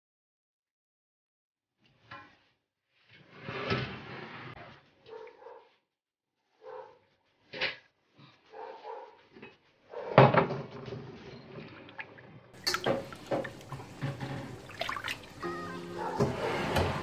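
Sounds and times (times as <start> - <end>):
water sloshing: 11.6 - 16.2
fish pieces clunking against dish: 12.6 - 15.4.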